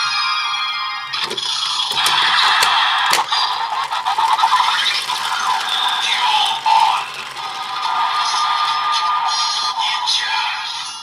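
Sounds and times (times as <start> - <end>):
sharp plastic clicks: 1.2 - 8.9
tinny electronic toy music: 1.2 - 11.0.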